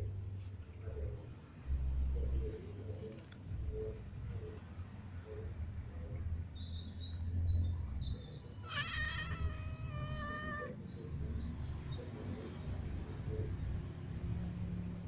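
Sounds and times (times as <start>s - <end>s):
cat meowing: 8.6s - 10.8s.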